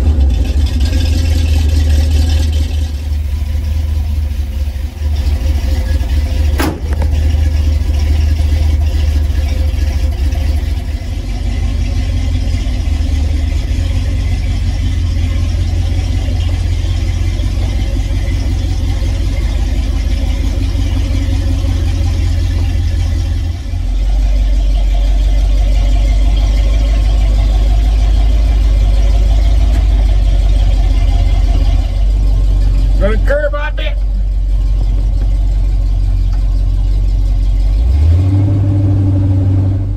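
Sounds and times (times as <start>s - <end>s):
pickup engine idling: 0.0s - 39.9s
hood slamming shut: 6.4s - 7.7s.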